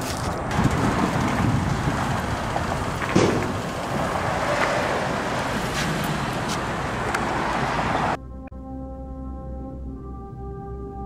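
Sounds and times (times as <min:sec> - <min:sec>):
wind rumbling on microphone: 0:00.0 - 0:08.2
road traffic: 0:00.0 - 0:10.5.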